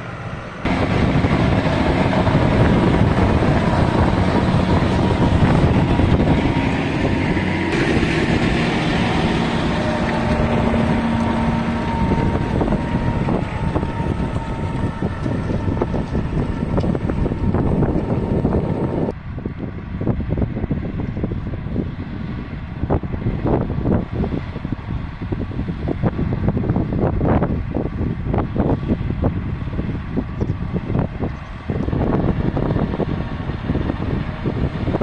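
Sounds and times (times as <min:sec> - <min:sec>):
tractor diesel engine under load: 0:00.0 - 0:35.0
wind buffeting microphone: 0:00.0 - 0:35.0.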